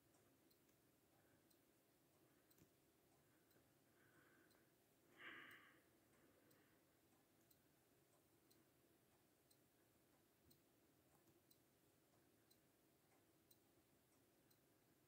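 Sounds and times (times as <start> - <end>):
soft ticks: 0.0 - 15.0.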